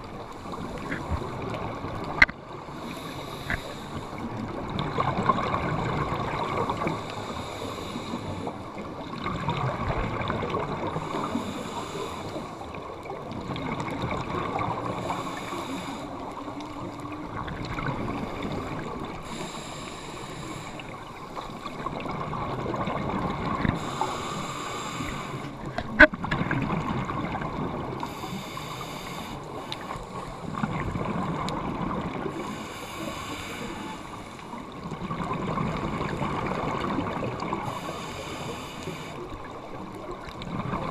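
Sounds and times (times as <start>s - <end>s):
steady underwater hiss: 0.0s - 26.0s, 26.6s - 40.9s.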